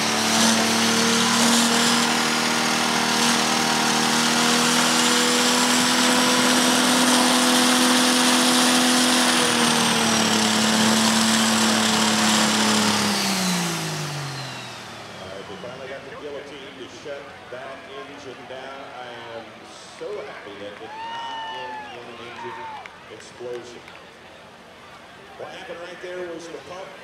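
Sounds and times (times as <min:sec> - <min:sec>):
diesel engine revving flat out: 0:00.0 - 0:16.8.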